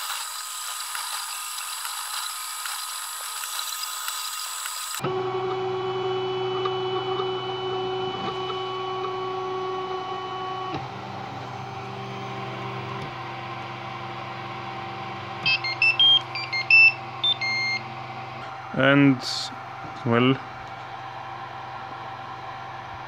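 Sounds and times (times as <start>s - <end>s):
printer motors whining: 0.0s - 23.0s
buzzer beeping tune: 15.5s - 17.8s.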